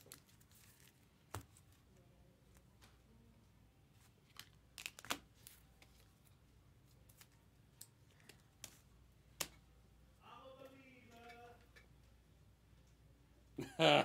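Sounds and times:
card wrappers crinkling: 0:00.0 - 0:01.7, 0:04.1 - 0:06.2.

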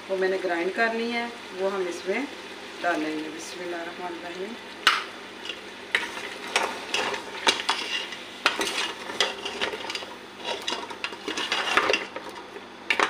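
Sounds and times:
faint sizzle of frying: 0:00.0 - 0:13.0
ladle clinking and scraping pot: 0:04.9 - 0:13.0.

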